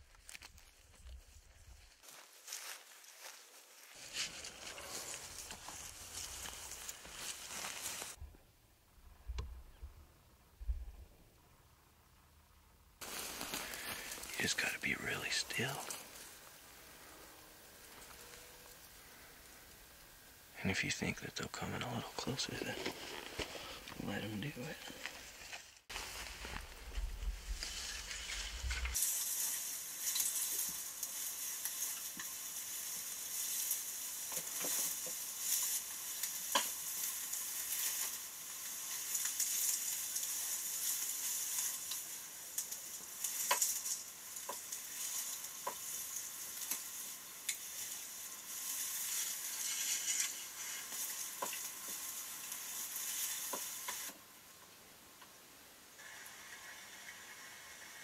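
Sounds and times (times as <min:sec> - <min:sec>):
dry grass rustling and crackling: 0:00.0 - 0:08.2, 0:13.0 - 0:54.6
grass stems snapping: 0:33.4 - 0:54.1.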